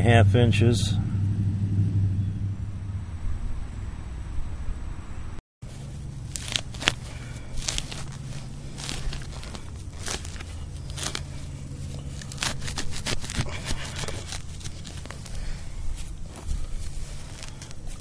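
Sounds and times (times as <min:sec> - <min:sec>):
digging tool tearing turf: 0:05.7 - 0:18.0.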